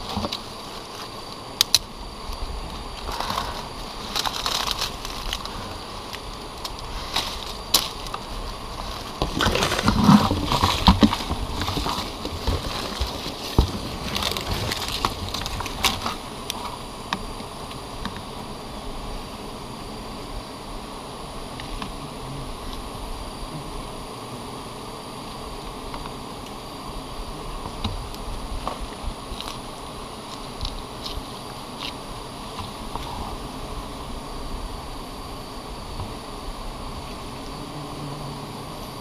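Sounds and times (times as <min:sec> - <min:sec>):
rustling of leaves and comb: 0:02.9 - 0:16.8.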